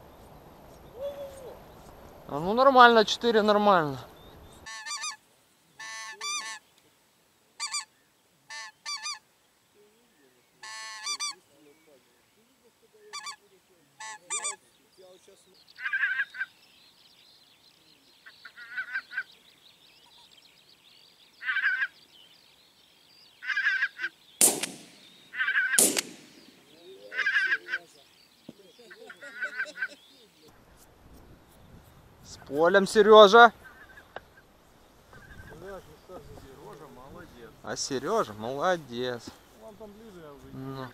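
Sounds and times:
geese honking: 0:04.6 - 0:05.2, 0:05.8 - 0:06.6, 0:07.6 - 0:07.9, 0:08.5 - 0:09.2, 0:10.6 - 0:11.5, 0:13.0 - 0:14.6, 0:15.8 - 0:16.6, 0:18.3 - 0:19.3, 0:21.4 - 0:22.0, 0:23.4 - 0:24.1, 0:25.3 - 0:30.5
loud sharp bangs: 0:24.4 - 0:25.2, 0:25.8 - 0:26.7.

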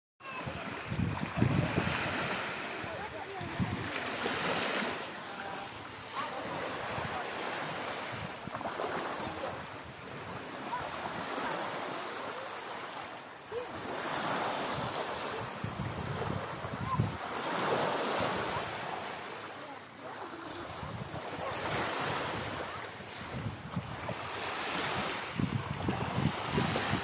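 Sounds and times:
small waves breaking on beach: 0:00.2 - 0:27.0
wind buffeting microphone: 0:00.3 - 0:04.5, 0:14.6 - 0:17.4, 0:20.6 - 0:27.0.

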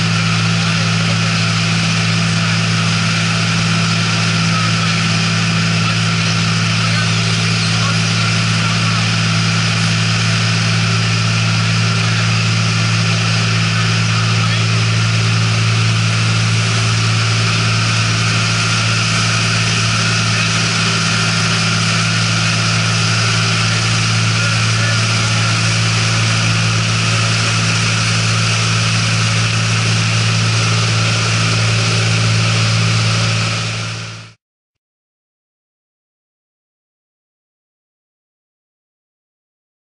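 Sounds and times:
boat engine drone: 0:00.0 - 0:34.4.

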